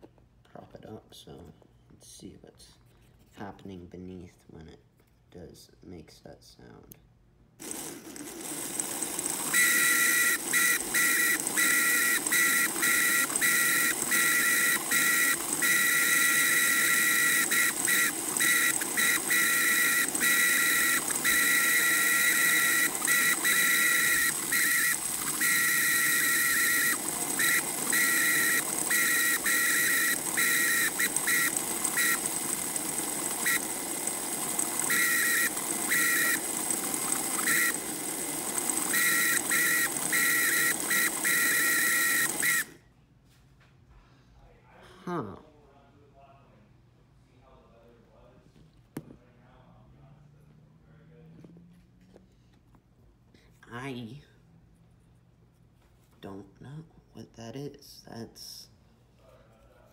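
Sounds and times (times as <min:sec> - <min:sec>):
high-pitched motor squeal: 0:07.7 - 0:42.7.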